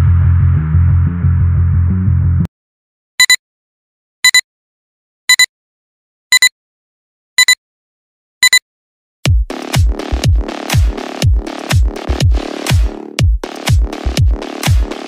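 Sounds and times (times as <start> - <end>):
short electronic double beeps: 3.2 - 3.4, 4.2 - 4.4, 5.3 - 5.5, 6.3 - 6.5, 7.4 - 7.6, 8.4 - 8.6.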